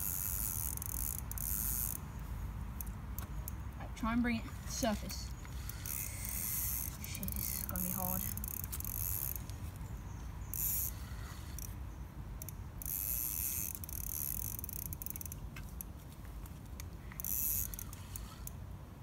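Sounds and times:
fishing reel ratchet clicking: 0.0 - 2.2, 2.8 - 3.6, 5.4 - 9.6, 10.5 - 11.8, 12.4 - 15.9, 16.8 - 18.6.

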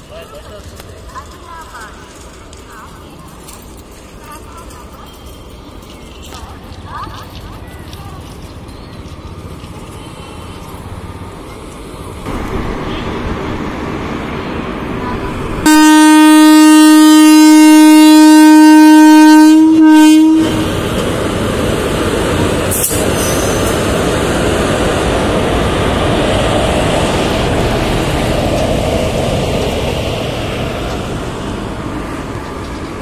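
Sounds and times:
train rumbling past: 0.0 - 33.0
locomotive horn blast: 12.3 - 13.4, 15.6 - 20.8.

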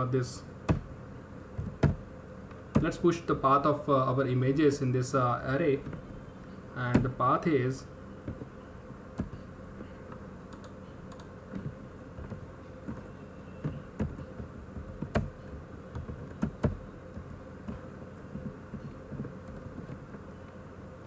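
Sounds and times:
faint steady hum: 0.0 - 21.0
computer keyboard typing: 10.5 - 19.9.

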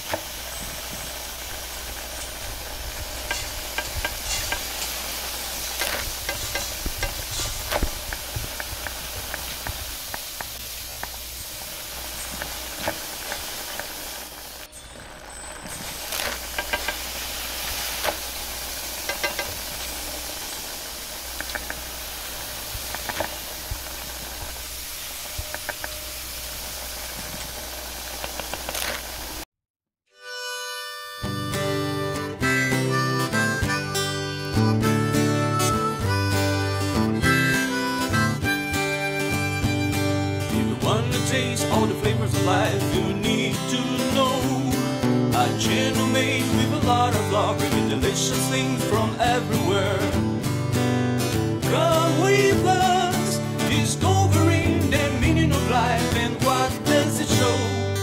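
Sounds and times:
noodles sizzling in a wok: 0.0 - 29.4, 51.2 - 58.0
gas burner hissing and rumbling: 0.0 - 29.5, 31.6 - 58.0.

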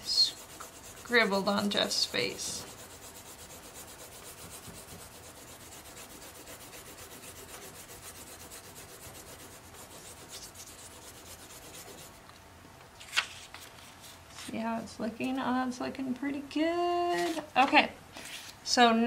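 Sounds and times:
fingers rubbing paper: 0.0 - 12.2.

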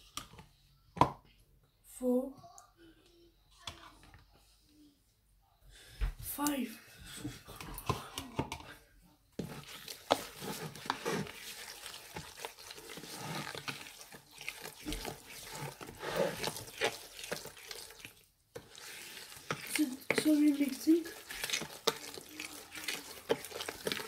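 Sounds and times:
utensil stirring wet marinade: 9.4 - 24.0.

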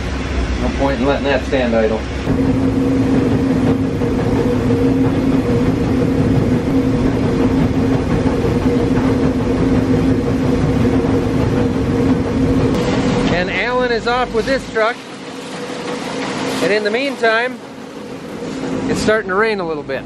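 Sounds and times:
grain dryer fans humming: 0.0 - 20.0.

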